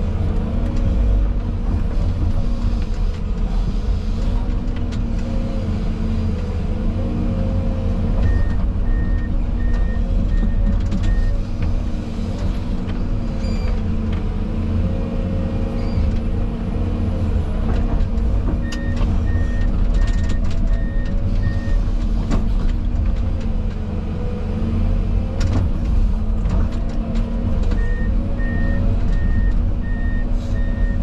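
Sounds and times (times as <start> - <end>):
heavy diesel engines running: 0.0 - 31.0
reversing alarm beeping: 27.8 - 31.0.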